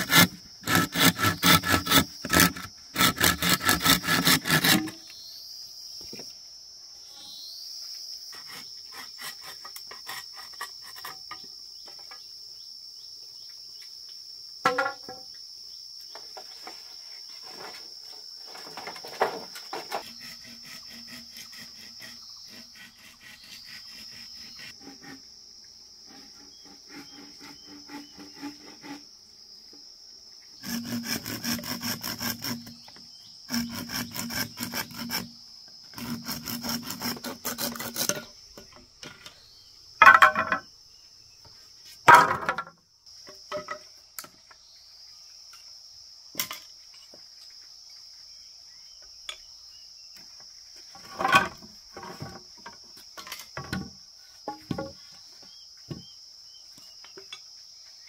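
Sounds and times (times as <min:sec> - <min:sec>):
rhythmic rasping on wood: 0:00.0 - 0:05.0, 0:26.1 - 0:29.0, 0:30.6 - 0:32.8, 0:33.5 - 0:35.3, 0:36.0 - 0:38.1
insects calling: 0:00.0 - 0:58.0
light knocks and scrapes: 0:16.1 - 0:20.1, 0:50.8 - 0:56.1.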